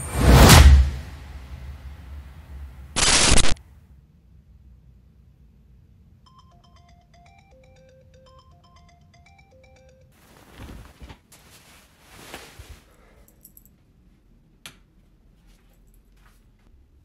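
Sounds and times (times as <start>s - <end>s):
phone alarm beeping melody: 6.3s - 10.2s
rustling and shuffling: 10.2s - 14.3s, 15.0s - 16.8s.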